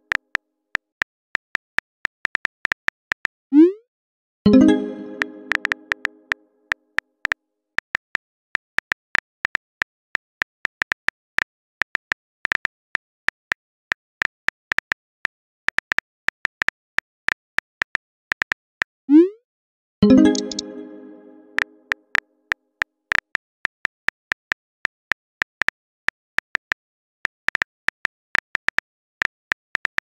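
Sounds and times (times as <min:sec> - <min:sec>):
phone keyboard typing clicks: 0:04.9 - 0:06.2, 0:20.0 - 0:21.7.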